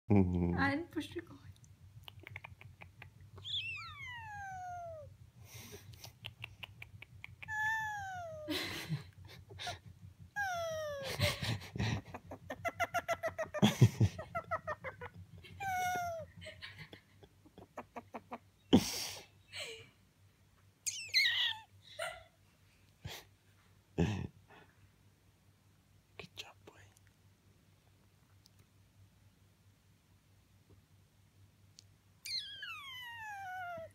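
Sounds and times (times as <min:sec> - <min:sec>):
parrot whistled calls: 0:03.4 - 0:04.5, 0:20.9 - 0:21.6, 0:32.2 - 0:33.0.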